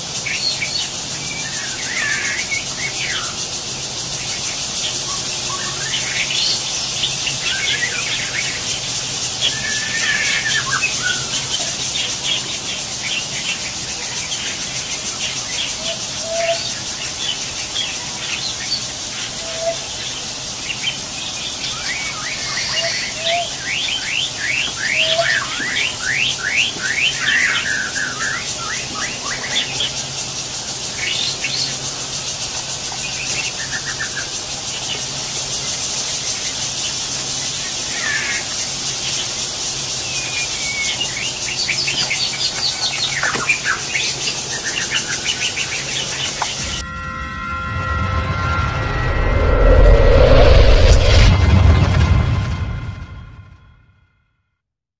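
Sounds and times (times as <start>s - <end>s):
birds calling: 0.0s - 46.8s
high insect drone: 0.0s - 51.2s.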